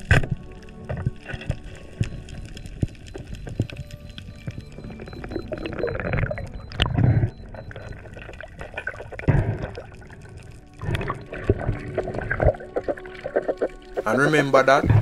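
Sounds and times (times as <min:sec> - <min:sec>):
small clicks: 0:00.0 - 0:11.1
underwater water rushing and gurgling: 0:00.0 - 0:15.0.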